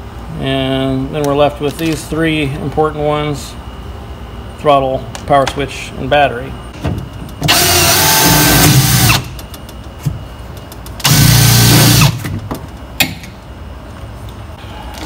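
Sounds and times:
cordless drill boring: 7.5s - 9.2s, 11.0s - 12.1s.

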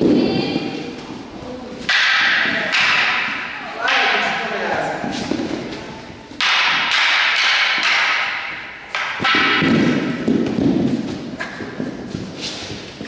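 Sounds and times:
wooden staffs striking together: 1.8s - 5.8s, 6.4s - 13.0s.

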